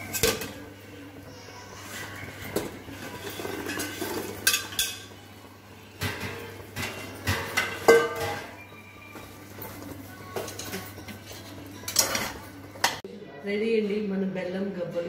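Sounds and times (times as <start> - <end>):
metal spoon scraping a pot: 1.8 - 5.1, 10.4 - 13.0.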